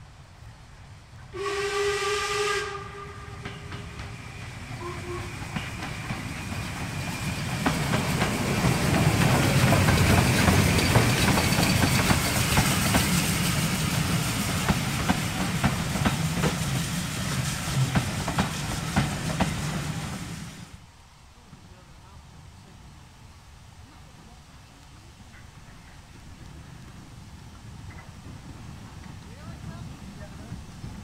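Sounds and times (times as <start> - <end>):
steam locomotive working: 0.8 - 20.8, 24.0 - 31.0
steam hissing: 1.4 - 20.8
train wheels clicking over rail joints: 3.2 - 20.5, 25.3 - 31.0.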